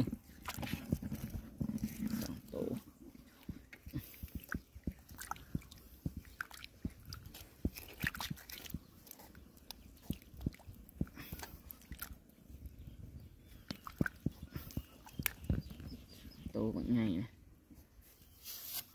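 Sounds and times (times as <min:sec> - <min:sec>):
small splashes: 0:00.0 - 0:12.2, 0:13.6 - 0:15.9
hands sloshing in muddy water: 0:00.0 - 0:16.2.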